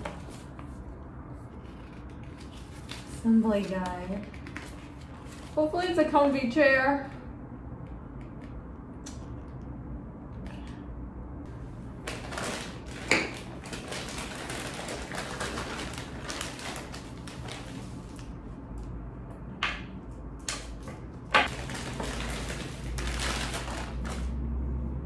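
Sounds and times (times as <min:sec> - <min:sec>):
plastic and bubble wrap crinkling: 0:11.9 - 0:18.3, 0:21.4 - 0:24.4.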